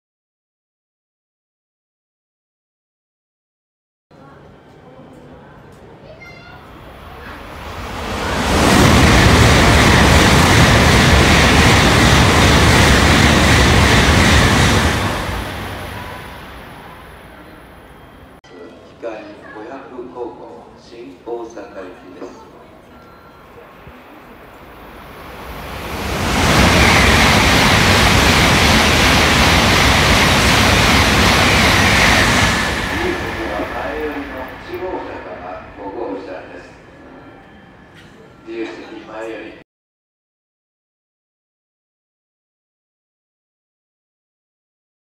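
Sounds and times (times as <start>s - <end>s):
train passing at speed: 6.6s - 18.4s, 21.4s - 39.6s.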